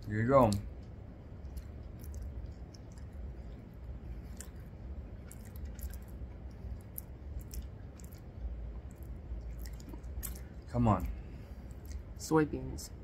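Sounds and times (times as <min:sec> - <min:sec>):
low steady rumble: 0:00.0 - 0:13.0
wet mouth clicks: 0:00.5 - 0:03.6
person chewing: 0:00.5 - 0:12.2.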